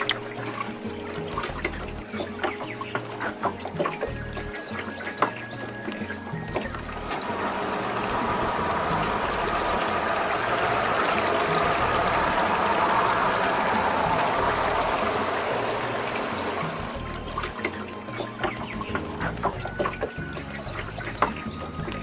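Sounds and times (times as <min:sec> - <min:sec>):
rushing splashing water: 0:00.0 - 0:22.0.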